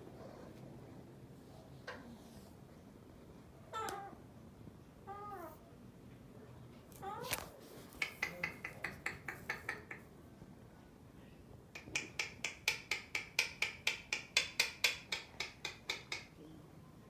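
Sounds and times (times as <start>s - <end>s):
parrot making sharp clicks: 7.3s - 10.0s, 11.8s - 16.3s.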